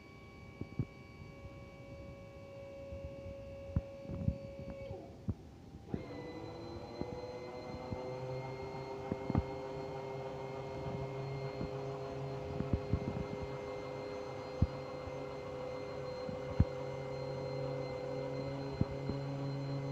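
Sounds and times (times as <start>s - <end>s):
hydraulic pump motor humming: 5.9s - 19.9s.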